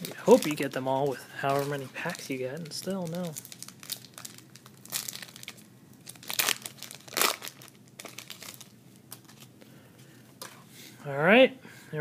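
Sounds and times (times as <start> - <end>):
wrapper crinkling and tearing: 0.0 - 9.5.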